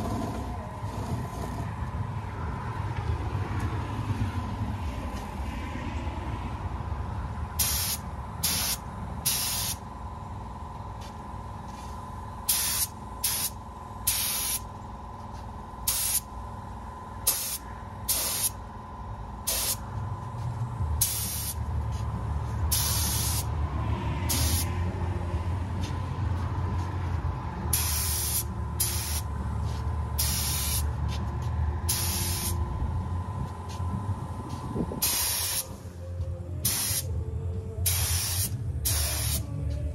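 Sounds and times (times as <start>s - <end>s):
low steady hum: 0.0s - 39.9s
spray gun hissing bursts: 7.6s - 9.8s, 12.5s - 14.7s, 15.9s - 16.3s, 17.3s - 18.6s, 19.5s - 19.8s, 21.0s - 21.6s, 22.7s - 23.5s, 27.7s - 29.3s, 30.2s - 30.9s, 31.9s - 32.6s, 35.0s - 35.8s, 36.6s - 37.1s, 37.8s - 39.4s.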